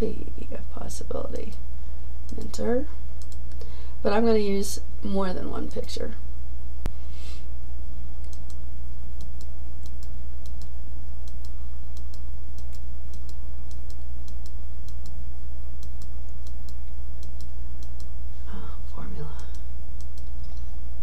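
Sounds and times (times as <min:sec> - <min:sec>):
computer mouse clicking: 0:03.2 - 0:03.7, 0:08.2 - 0:08.6, 0:09.2 - 0:15.2, 0:15.8 - 0:18.1, 0:19.3 - 0:20.7.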